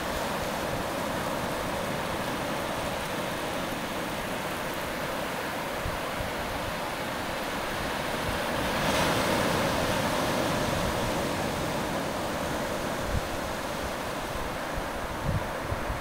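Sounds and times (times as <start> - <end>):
shallow water rushing over sand: 0.0 - 16.0.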